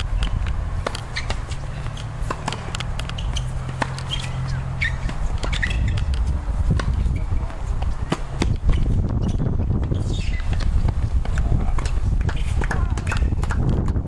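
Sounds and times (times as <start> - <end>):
low rumble: 0.0 - 10.0
racquets striking tennis ball: 0.0 - 14.0
shoe squeaks: 0.2 - 10.7, 11.4 - 13.4.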